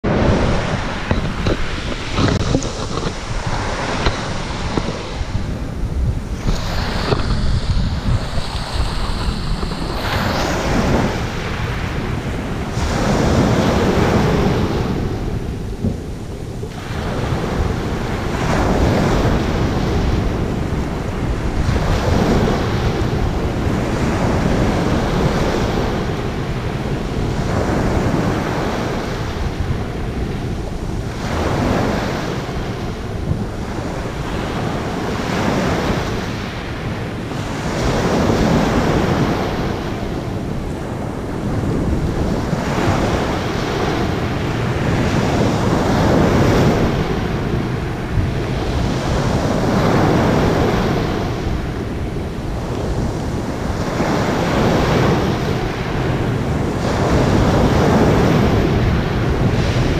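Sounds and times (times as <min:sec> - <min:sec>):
waves washing over pebble beach: 0:00.1 - 0:59.9.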